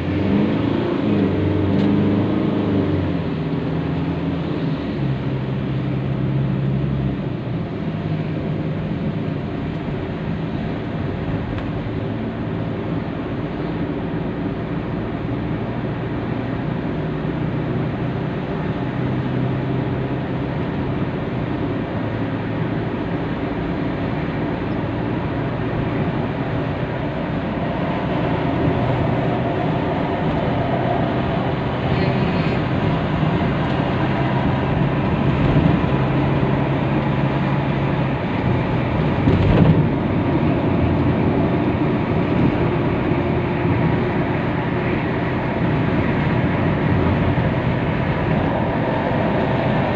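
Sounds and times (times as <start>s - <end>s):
car engine hum: 0.0s - 49.9s
tyre and road noise: 0.0s - 49.9s.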